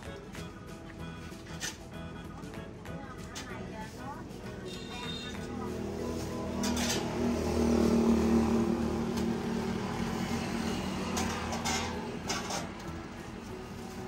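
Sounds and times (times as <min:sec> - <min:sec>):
engine running: 0:05.3 - 0:14.0.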